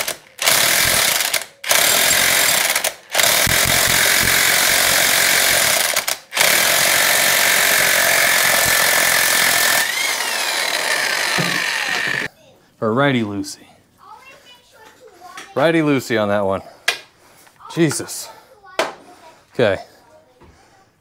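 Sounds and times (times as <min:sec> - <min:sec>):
impact wrench hammering: 0:00.0 - 0:12.3.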